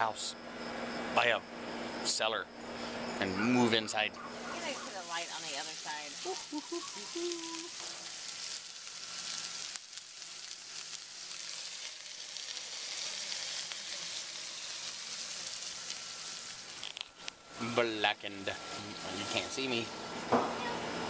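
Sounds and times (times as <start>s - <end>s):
fish sizzling in a skillet: 4.5s - 20.1s.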